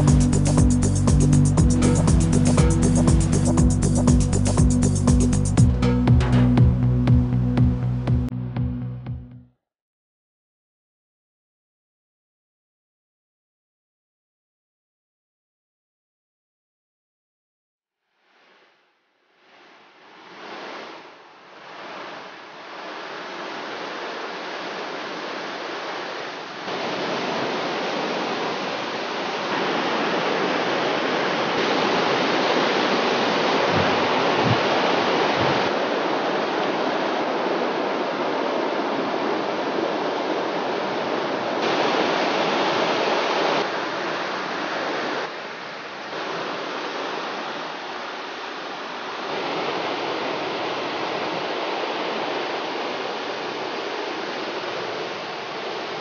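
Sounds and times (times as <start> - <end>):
whitewater rushing through rapids: 19.5 - 56.0.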